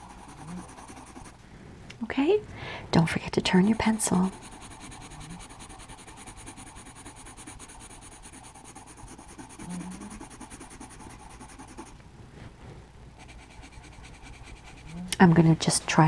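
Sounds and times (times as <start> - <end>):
coloured pencil scratching paper: 0.0 - 1.4, 3.5 - 12.0, 13.2 - 15.1.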